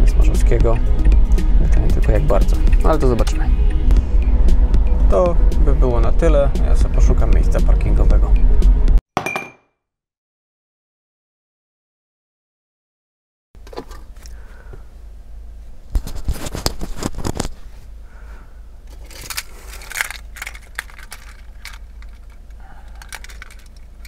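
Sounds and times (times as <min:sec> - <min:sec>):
low steady hum: 0:00.0 - 0:08.7, 0:13.6 - 0:24.0
clicks and rustles of handling: 0:15.9 - 0:17.7, 0:18.9 - 0:24.0.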